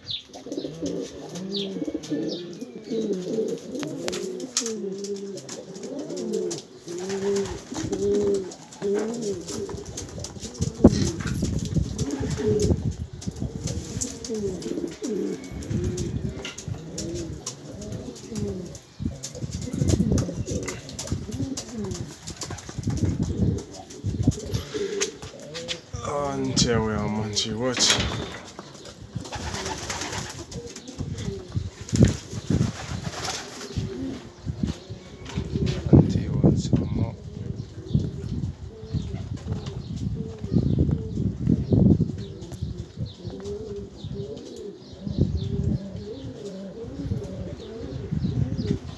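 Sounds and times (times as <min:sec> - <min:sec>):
pigeons cooing: 0:00.0 - 0:48.9
low thumps: 0:25.2 - 0:29.5.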